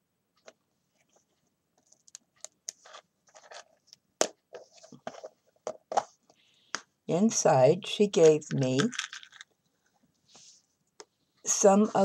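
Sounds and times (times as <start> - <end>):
clicks and rustles of box handling: 0.4 - 6.4, 8.3 - 9.5.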